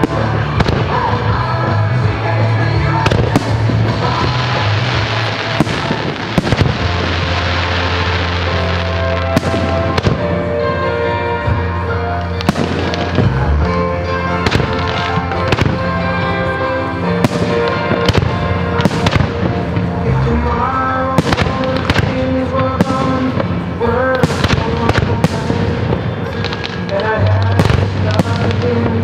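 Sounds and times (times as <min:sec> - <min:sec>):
music with sustained notes: 0:00.0 - 0:29.0.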